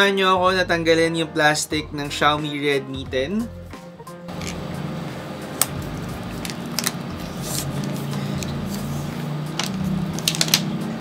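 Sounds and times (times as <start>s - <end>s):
plastic film peeling rustle: 6.3s - 10.7s.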